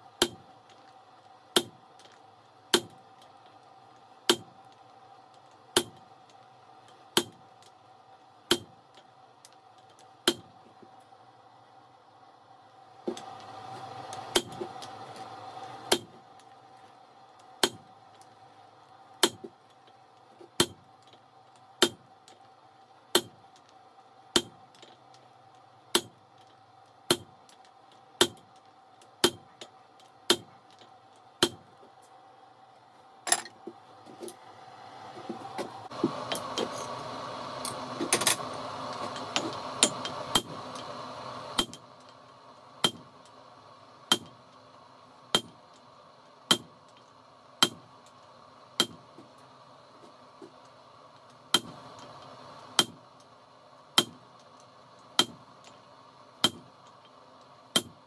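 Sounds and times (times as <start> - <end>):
hammer striking steel on anvil: 0.2 - 0.5, 1.6 - 1.8, 2.7 - 3.0, 4.3 - 4.6, 5.8 - 6.0, 7.2 - 7.4, 8.5 - 8.8, 10.2 - 10.6, 14.3 - 14.8, 15.9 - 16.2, 17.6 - 17.9, 19.2 - 19.5, 20.6 - 20.9, 21.8 - 22.1, 23.1 - 23.4, 24.4 - 24.6, 26.0 - 26.2, 27.1 - 27.4, 28.2 - 28.5, 29.2 - 29.7, 30.3 - 30.8, 31.4 - 31.7, 39.1 - 40.6, 41.6 - 41.8, 42.8 - 43.2, 44.1 - 44.4, 45.3 - 45.6, 46.5 - 46.8, 47.6 - 47.9, 48.8 - 49.1, 51.5 - 51.8, 52.8 - 53.0, 54.0 - 54.2, 55.2 - 55.5, 56.4 - 56.7, 57.8 - 58.0.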